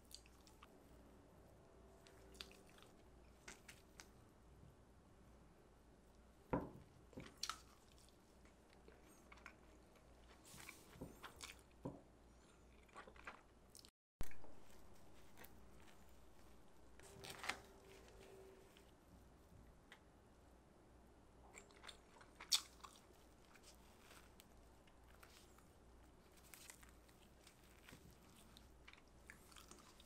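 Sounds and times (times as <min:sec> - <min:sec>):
bread crunching and crackling: 0:07.1 - 0:18.9, 0:21.6 - 0:30.0.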